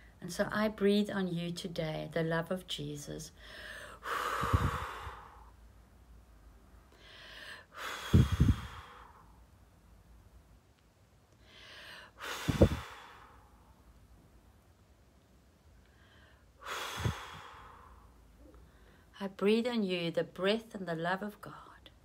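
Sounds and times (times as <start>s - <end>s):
woman drawing breath: 3.4s - 5.6s, 6.9s - 9.4s, 11.4s - 13.7s, 15.9s - 19.1s
woman blowing into microphone: 4.0s - 5.5s, 7.7s - 9.4s, 12.1s - 13.5s, 16.6s - 18.0s.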